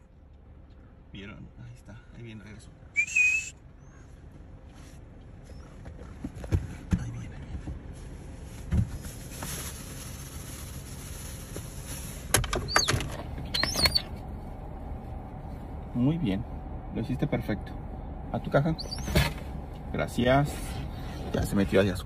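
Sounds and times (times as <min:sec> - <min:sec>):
faint wind: 0:00.0 - 0:22.0
loud recall whistle: 0:03.0 - 0:03.6
short high bird calls: 0:03.0 - 0:04.2, 0:13.5 - 0:14.1, 0:18.8 - 0:19.2.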